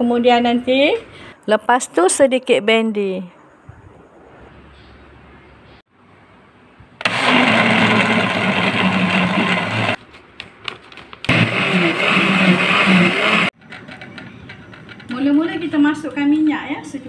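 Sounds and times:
blender clicks: 7.0s - 10.0s
blender grinding: 7.0s - 10.0s, 11.3s - 13.6s.

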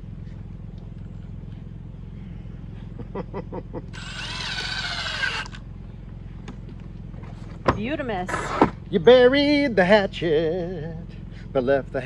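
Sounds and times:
cordless drill driving a screw: 4.0s - 5.6s.

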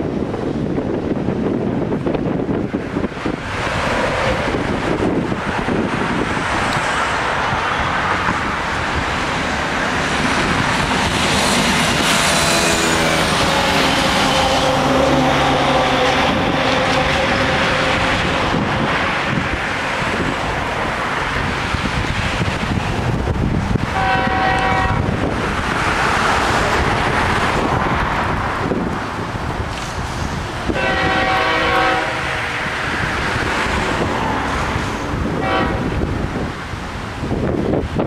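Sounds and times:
road traffic: 0.0s - 38.0s
wind on microphone: 0.0s - 38.0s
vehicle passing: 3.2s - 29.2s.

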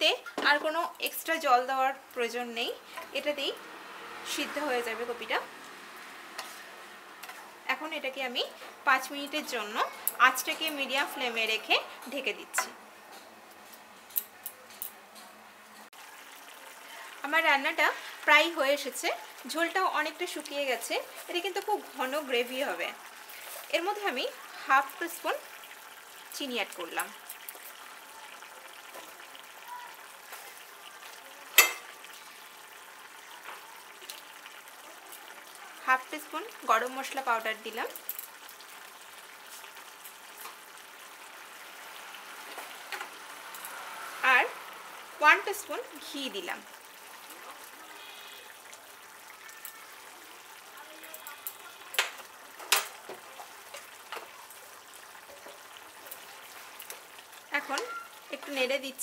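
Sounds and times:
curry bubbling and sizzling in a pan: 0.0s - 14.8s, 15.6s - 59.0s
small crackles: 26.9s - 35.8s, 37.8s - 43.8s, 46.8s - 58.6s.

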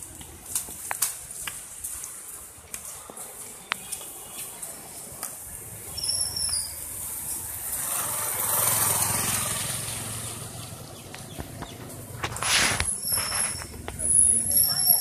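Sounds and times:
motorcycle passing on wet road: 4.5s - 14.2s.

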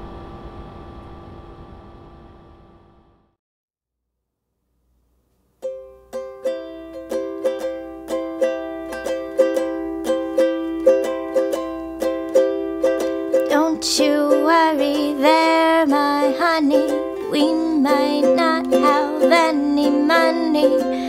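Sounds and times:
ukulele strumming: 5.6s - 21.0s.

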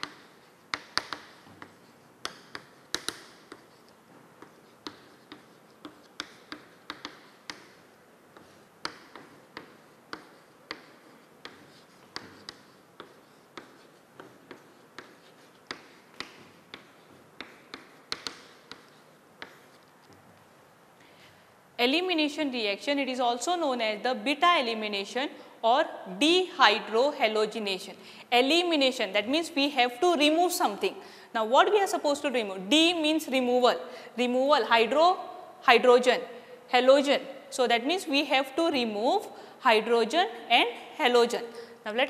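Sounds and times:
chalk clicking on chalkboard: 0.0s - 20.4s.

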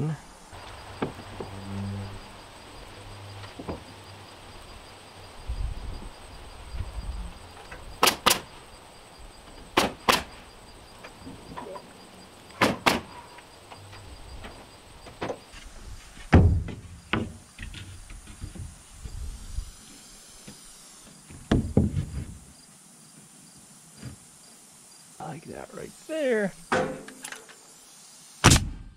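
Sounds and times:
boards and tools knocking: 3.6s - 3.9s, 16.2s - 18.8s, 21.3s - 22.4s
nail gun firing into wood: 8.0s - 8.5s, 9.8s - 10.4s, 12.6s - 13.2s, 28.4s - 28.9s.

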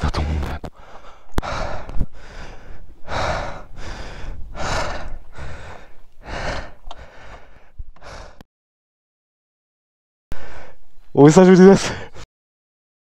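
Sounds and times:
man panting hard: 0.7s - 8.4s, 10.3s - 10.8s, 11.8s - 12.2s.

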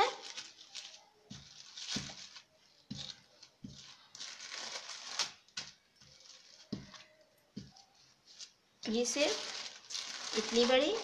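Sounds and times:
plastic sheet crinkling: 0.0s - 11.0s.

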